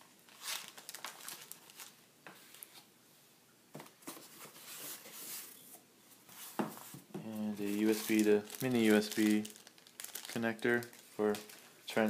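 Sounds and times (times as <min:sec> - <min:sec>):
plastic bag rustling: 0:00.3 - 0:02.8, 0:06.4 - 0:12.0.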